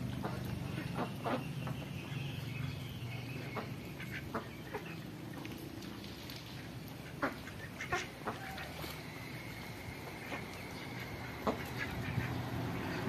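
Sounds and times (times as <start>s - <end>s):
low steady hum: 0.0s - 13.0s
ducks quacking: 0.1s - 2.0s, 3.4s - 5.0s, 7.0s - 8.9s, 10.2s - 13.0s.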